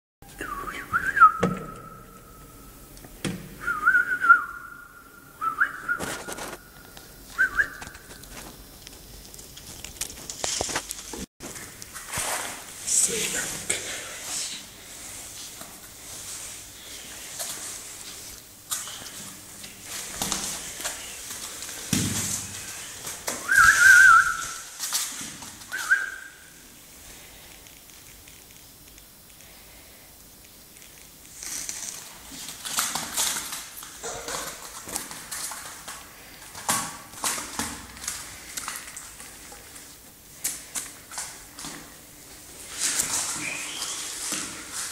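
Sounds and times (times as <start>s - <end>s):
person whistling: 0.4s - 2.2s, 3.6s - 6.5s, 7.3s - 7.9s, 23.4s - 24.6s, 25.7s - 26.5s
rustling: 5.6s - 44.9s.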